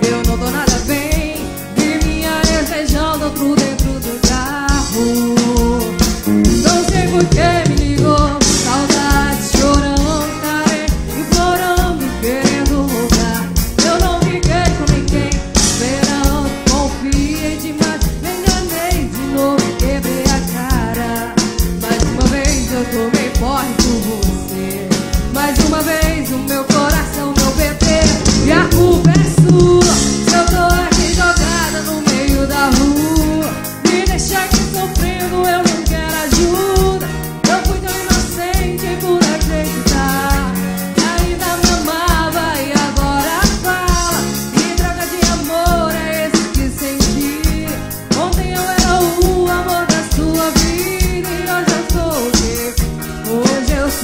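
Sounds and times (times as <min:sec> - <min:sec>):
drum kit beat: 0:00.0 - 0:54.0
electric guitar: 0:00.0 - 0:54.0
trombone: 0:27.7 - 0:31.9.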